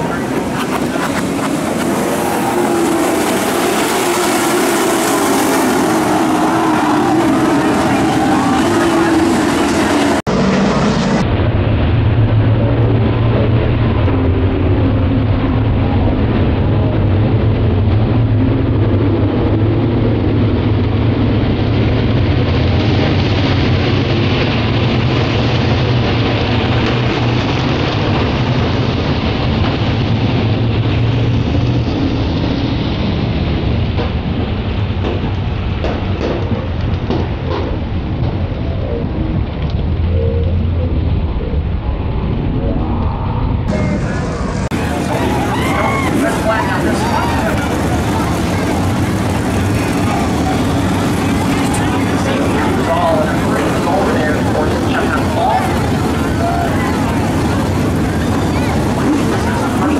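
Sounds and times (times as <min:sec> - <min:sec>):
race truck engines droning: 0:00.0 - 0:59.9.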